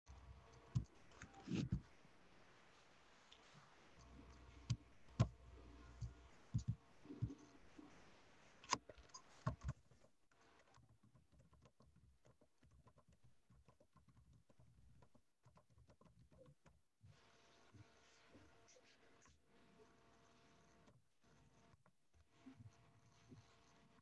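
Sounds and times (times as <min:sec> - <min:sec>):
keyboard and mouse clicks: 0:00.5 - 0:01.9, 0:04.0 - 0:07.6, 0:08.6 - 0:16.8.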